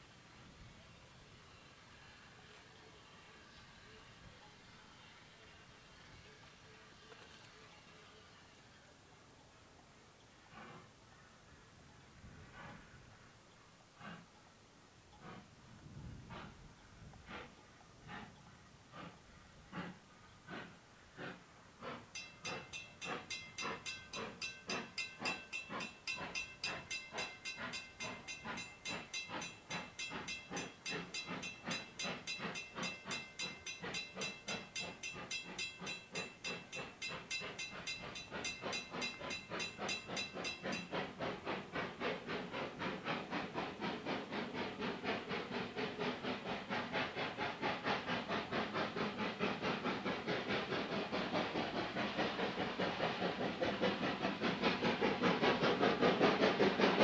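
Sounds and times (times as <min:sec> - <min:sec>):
steam hissing: 0:00.0 - 0:09.0, 0:10.4 - 0:11.0, 0:12.3 - 0:13.3, 0:15.2 - 0:57.0
steam locomotive chuffing: 0:00.0 - 0:09.0, 0:10.4 - 0:11.0, 0:12.2 - 0:14.3, 0:15.1 - 0:57.0.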